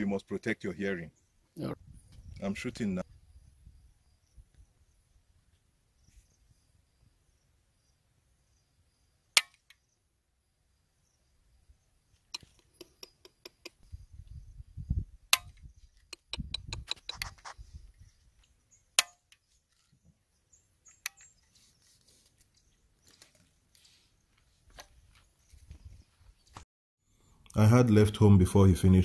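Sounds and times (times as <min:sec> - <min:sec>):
sharp metallic gun clicks: 0:09.4 - 0:09.8.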